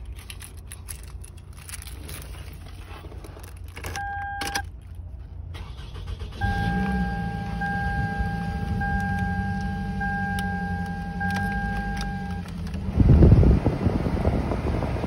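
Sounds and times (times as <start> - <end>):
keys jangling on keyring: 0.0 - 2.4
car engine starting and idling: 0.0 - 15.0.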